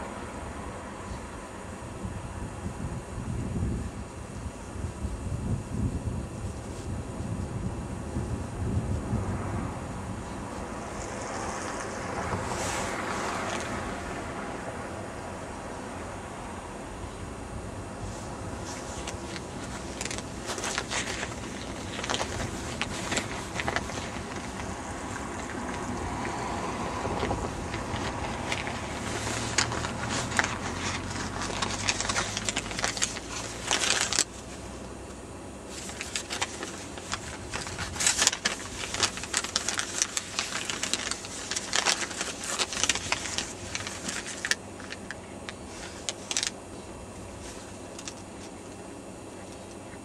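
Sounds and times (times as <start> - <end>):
low steady rumble: 0.0 - 50.0
paper crackling and rustling: 10.5 - 14.2, 18.0 - 34.8, 35.7 - 46.6, 47.3 - 48.8.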